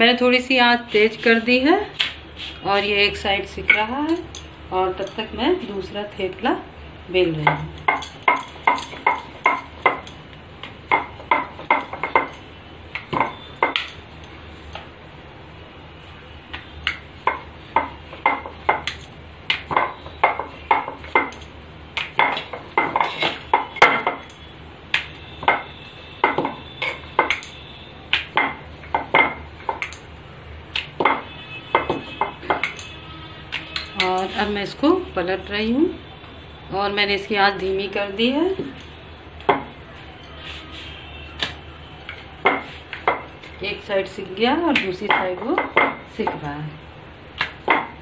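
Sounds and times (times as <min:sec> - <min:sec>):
bangles clinking: 0:03.7 - 0:05.4, 0:07.5 - 0:10.3, 0:10.9 - 0:14.9, 0:16.8 - 0:24.5, 0:25.1 - 0:30.2, 0:30.8 - 0:34.5
rolling pin clacking on stone board: 0:10.9 - 0:12.4, 0:13.0 - 0:14.0, 0:16.8 - 0:21.4, 0:22.0 - 0:27.5, 0:28.1 - 0:30.0, 0:30.8 - 0:32.8, 0:47.4 - 0:48.0.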